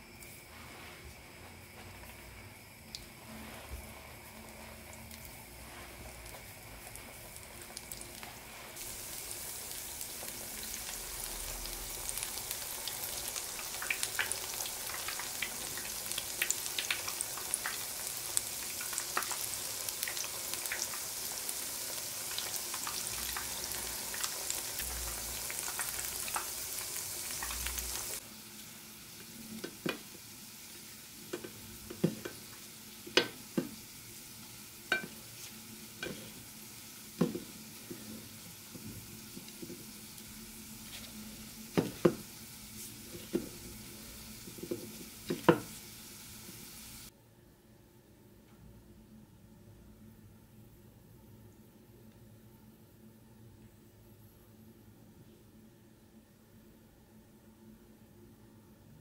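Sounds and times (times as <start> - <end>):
food deep-frying in hot oil: 1.5 - 47.1.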